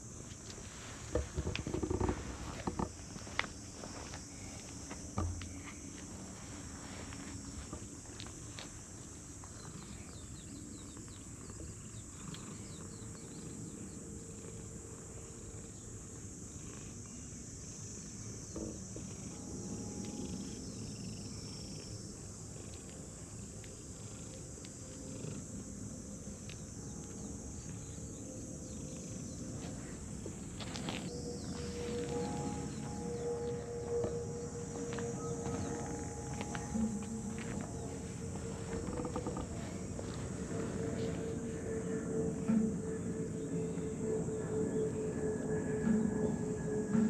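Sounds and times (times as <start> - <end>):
cat purring: 9.5 - 17.4, 22.5 - 26.5, 28.7 - 42.8
high-pitched hiss: 13.7 - 47.0.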